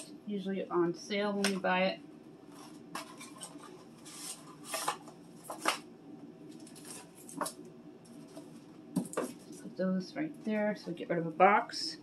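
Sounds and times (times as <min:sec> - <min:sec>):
cardboard and wrappers rustling: 0:02.5 - 0:05.9, 0:06.5 - 0:09.7.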